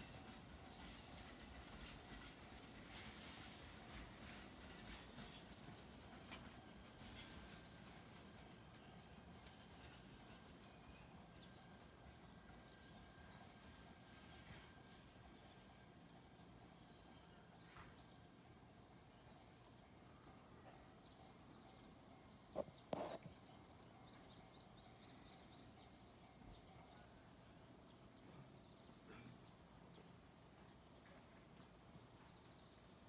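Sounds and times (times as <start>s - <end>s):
faint bird chirps: 31.8s - 32.9s.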